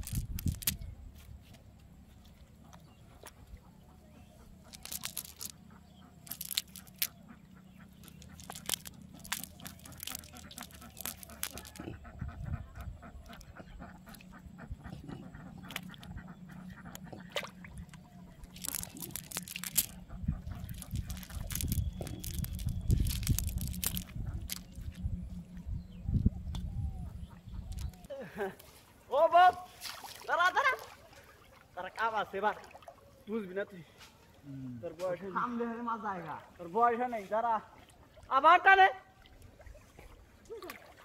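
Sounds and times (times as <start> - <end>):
net clicks and rustles: 0.0 - 0.8, 4.7 - 5.6, 6.2 - 7.2, 8.0 - 12.0, 18.4 - 25.0, 27.7 - 28.6
ducks quacking: 2.6 - 25.0.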